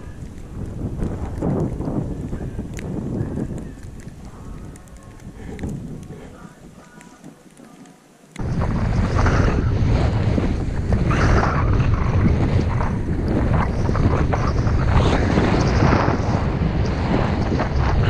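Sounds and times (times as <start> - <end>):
wind buffeting microphone: 0.0 - 7.7, 8.4 - 18.0
snowboard sliding through snow: 8.4 - 18.0.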